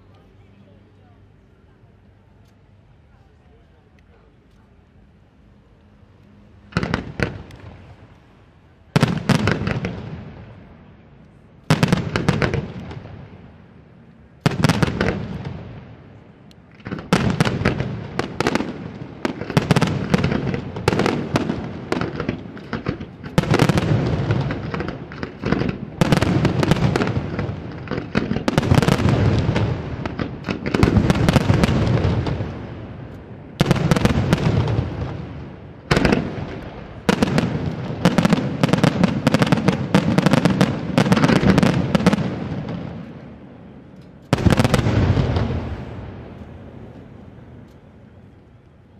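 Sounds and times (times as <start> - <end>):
firework booms: 6.7 - 7.9, 9.0 - 10.6, 11.7 - 13.4, 14.4 - 15.9, 16.8 - 43.2, 44.3 - 46.4
rapid firework bursts and crackle: 16.7 - 32.8, 33.5 - 43.2.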